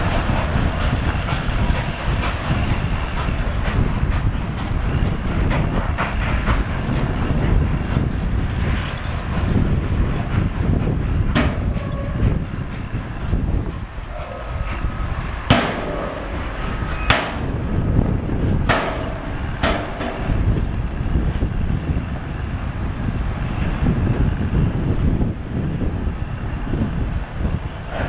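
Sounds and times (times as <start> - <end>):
diesel truck engine rumbling: 0.0 - 28.0
loud metallic clanks: 14.1 - 20.7.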